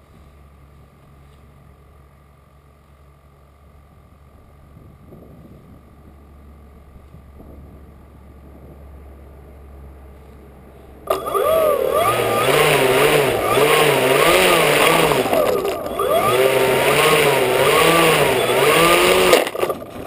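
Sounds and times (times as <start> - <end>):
electric motor propeller whine: 11.1 - 20.0.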